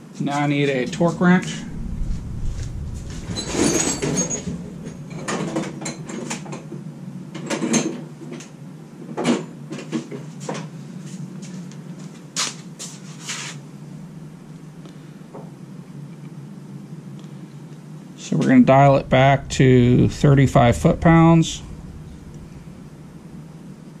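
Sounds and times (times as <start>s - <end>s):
steady low hum: 0.7s - 7.4s, 13.6s - 24.0s.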